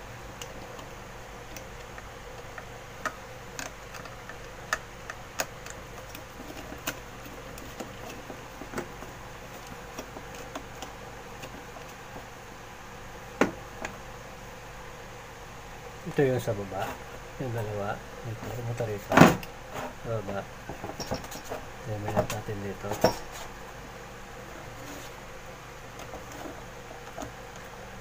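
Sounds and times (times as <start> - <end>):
wires clicking and tapping: 0.2 - 12.3.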